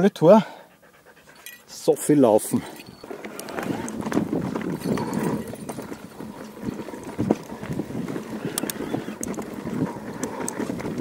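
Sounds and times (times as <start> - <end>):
bike rattling: 2.5 - 11.0
wind on microphone: 2.8 - 11.0.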